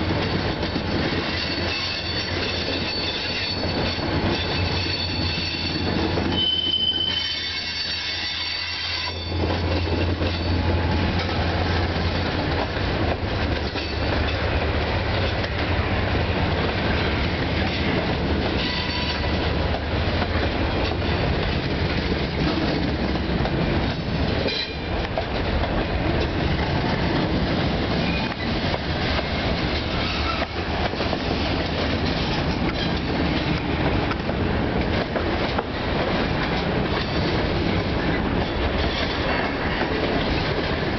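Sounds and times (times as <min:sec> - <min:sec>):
train wheels rumbling and clattering: 0:00.0 - 0:40.9
high-pitched wheel squeal: 0:01.3 - 0:09.4.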